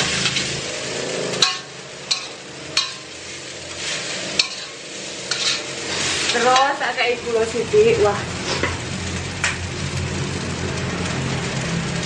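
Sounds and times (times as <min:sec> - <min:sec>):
spatula scraping metal wok: 0:00.0 - 0:09.2
soft sizzle of frying: 0:00.0 - 0:12.0.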